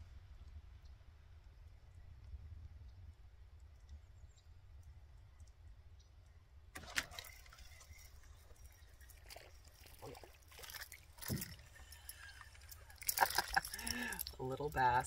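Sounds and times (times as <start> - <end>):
small water splashes: 6.8 - 15.0.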